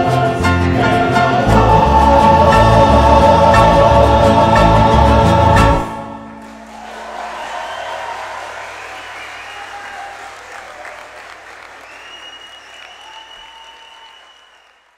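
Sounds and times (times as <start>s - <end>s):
audience applause: 6.4s - 14.9s.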